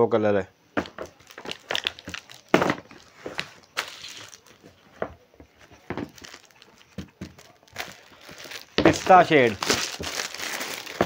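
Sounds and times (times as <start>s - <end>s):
cardboard boxes knocking and rustling: 5.0s - 11.0s.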